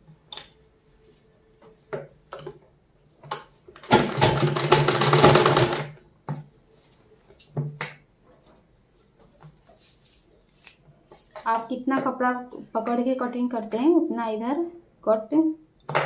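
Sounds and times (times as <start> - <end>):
sewing machine stitching: 3.8 - 6.0.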